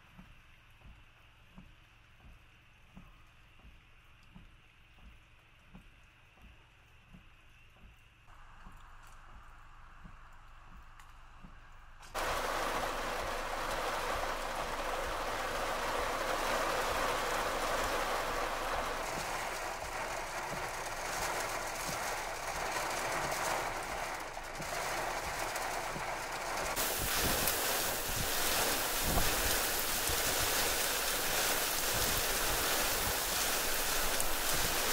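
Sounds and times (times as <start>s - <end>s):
heavy rain pouring: 12.2s - 34.9s
wind buffeting: 25.2s - 34.9s.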